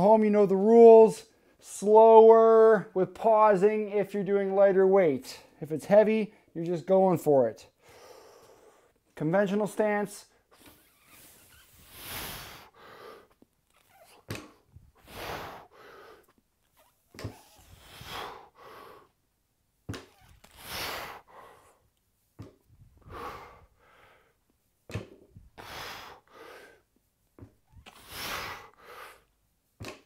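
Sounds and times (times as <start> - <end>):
man breathing hard: 7.8 - 9.0, 11.9 - 13.4, 15.0 - 16.4, 17.6 - 19.2, 20.6 - 21.8, 23.0 - 24.4, 25.4 - 26.9, 27.8 - 29.3.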